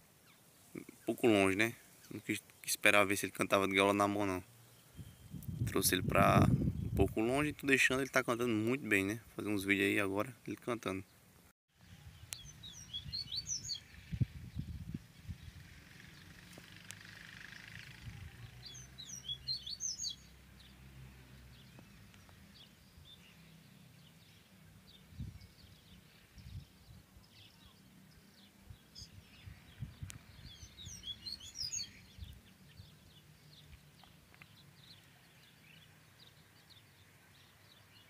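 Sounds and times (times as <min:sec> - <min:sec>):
bird twittering song: 0:00.2 - 0:11.2, 0:11.8 - 0:20.8, 0:21.4 - 0:38.0
single bird chirps: 0:04.8 - 0:05.6.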